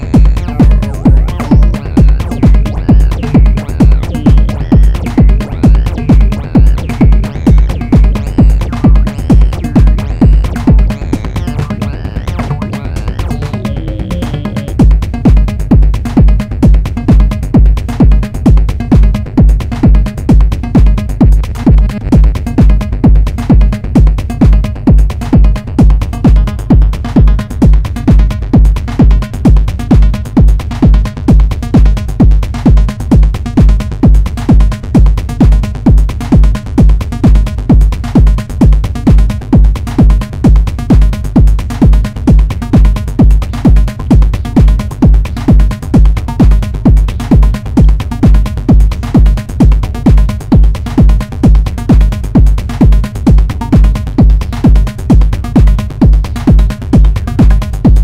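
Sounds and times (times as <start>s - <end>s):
synth patterns: 0.0s - 15.6s
kick drum: 0.0s - 58.0s.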